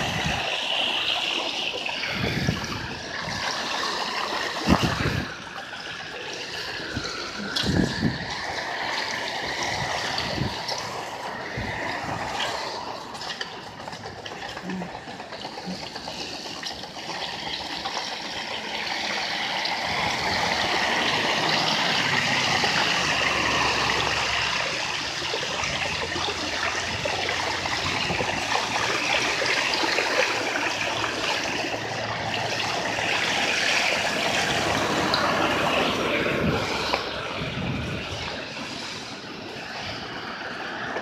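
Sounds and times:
tyres hissing on wet road: 0:00.0 - 0:41.0
truck engine hum: 0:18.4 - 0:41.0.

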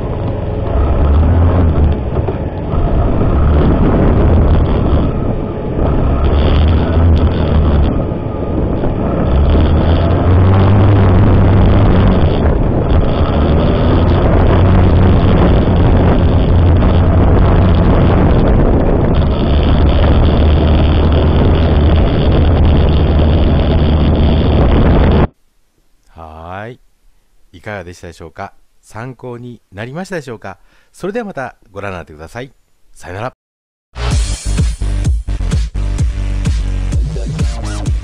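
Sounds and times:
rushing wind: 0:00.0 - 0:25.4
motorcycle engine running: 0:05.9 - 0:18.6.

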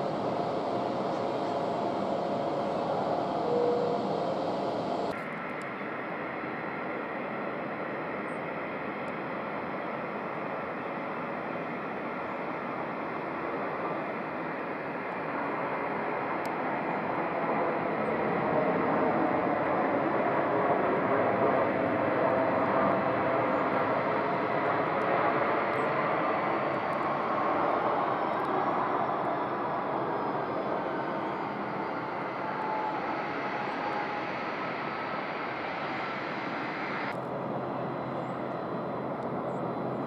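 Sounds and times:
jet engine rushing: 0:00.0 - 0:05.2, 0:21.4 - 0:37.3.

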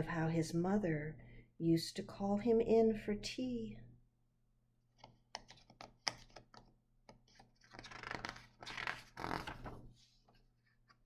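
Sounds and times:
book pages crackling: 0:05.0 - 0:11.0
page swishing as turned: 0:07.3 - 0:11.0.

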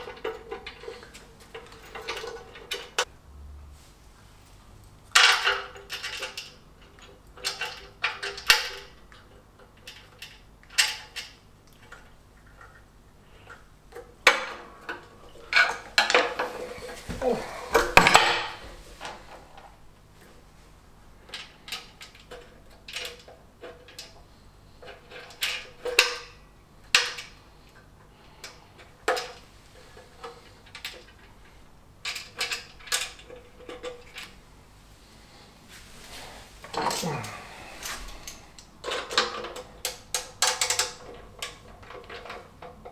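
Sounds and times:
tool clatter: 0:14.3 - 0:19.4.

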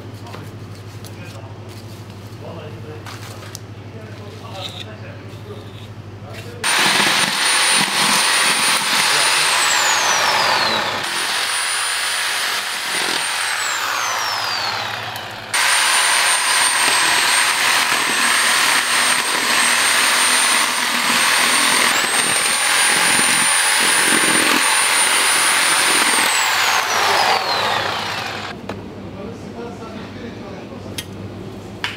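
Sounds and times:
reciprocating saw motor whine: 0:06.6 - 0:28.6
saw blade rasping through bone: 0:15.5 - 0:28.5.

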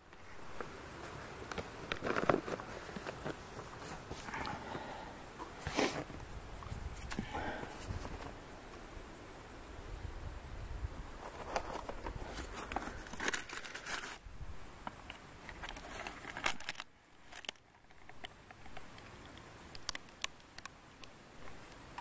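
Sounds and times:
wind rumble on microphone: 0:06.1 - 0:08.4, 0:09.6 - 0:13.1.

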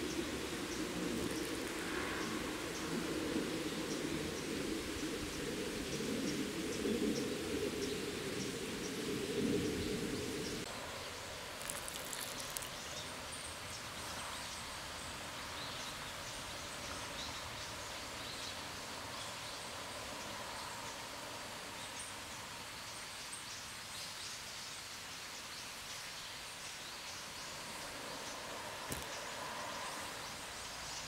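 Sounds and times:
patter of clicks: 0:11.6 - 0:13.0.

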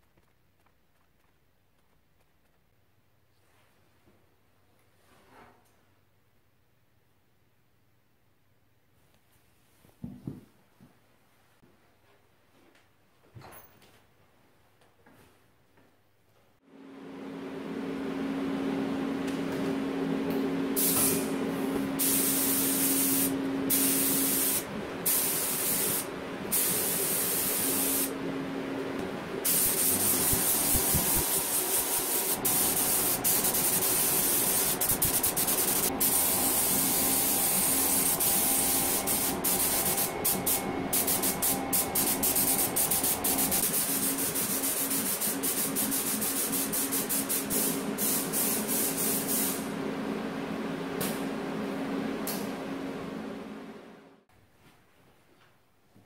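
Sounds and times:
paint spray gun hissing: 0:20.8 - 0:21.4, 0:22.0 - 0:28.2, 0:29.4 - 0:49.7.

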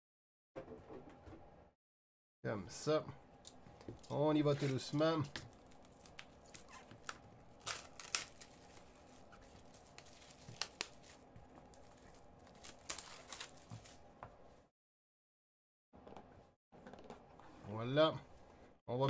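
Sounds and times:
plastic wrap rustling and crackling: 0:04.0 - 0:14.1.

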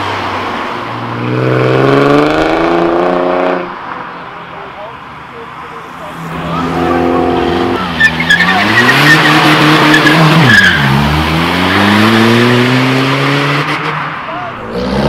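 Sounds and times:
car engine revving: 0:00.9 - 0:04.1, 0:05.6 - 0:15.0
tyres squealing on road: 0:05.8 - 0:15.0.

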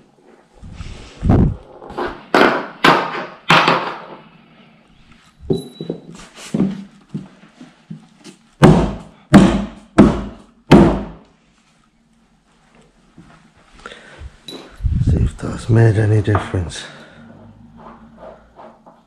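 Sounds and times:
heavy thuds on shelving panels: 0:08.6 - 0:11.2.

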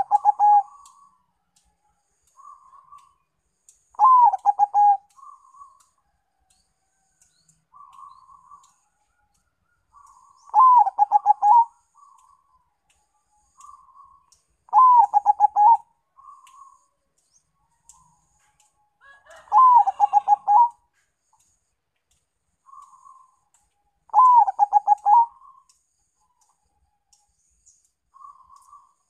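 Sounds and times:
dove cooing song: 0:00.0 - 0:01.2, 0:04.0 - 0:06.0, 0:07.7 - 0:08.8, 0:09.9 - 0:12.5, 0:13.5 - 0:16.9, 0:19.4 - 0:20.8, 0:24.1 - 0:25.7.

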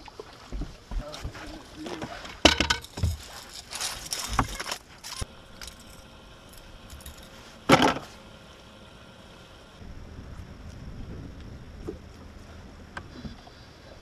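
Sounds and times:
scuffle on boat deck: 0:00.1 - 0:05.2.

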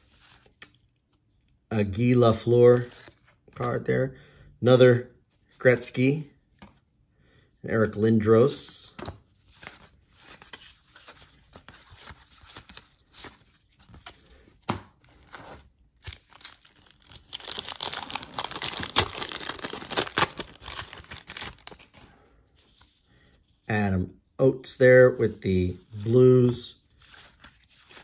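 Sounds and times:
card pack wrapper tearing open: 0:15.3 - 0:22.0.

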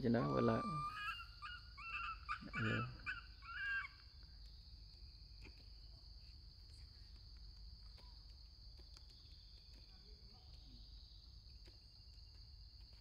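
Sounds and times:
high-pitched insect drone: 0:00.0 - 0:04.0
two-tone animal call: 0:00.0 - 0:04.0.

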